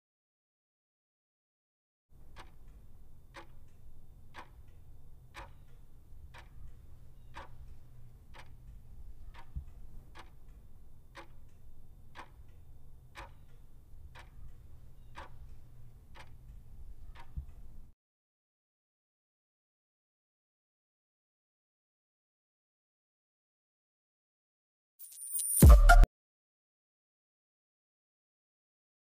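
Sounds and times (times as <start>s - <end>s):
clock ticking: 2.1s - 17.9s
low steady hum: 2.2s - 17.9s.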